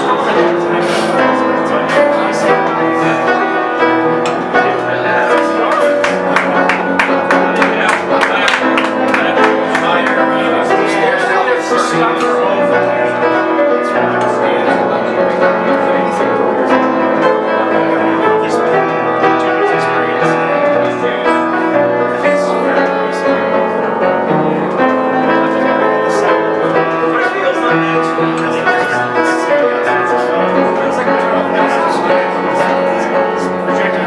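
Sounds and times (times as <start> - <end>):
solo piano playing: 0.0 - 34.0.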